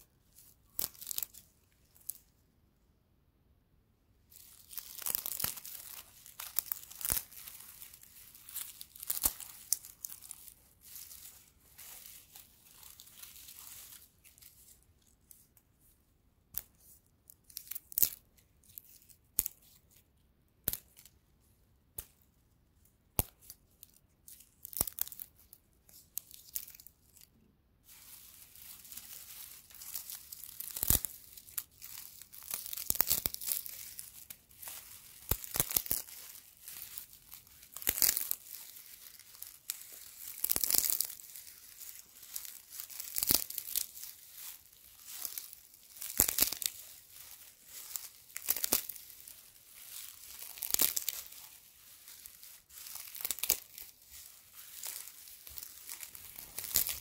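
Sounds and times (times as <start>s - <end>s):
straw stalks crackling and rustling: 0.0s - 2.4s, 4.3s - 15.8s, 16.5s - 21.2s, 23.2s - 57.0s
straw stalks snapping: 0.4s - 2.2s, 4.4s - 14.5s, 17.5s - 18.2s, 20.6s - 21.2s, 23.2s - 23.6s, 24.6s - 27.3s, 28.0s - 57.0s.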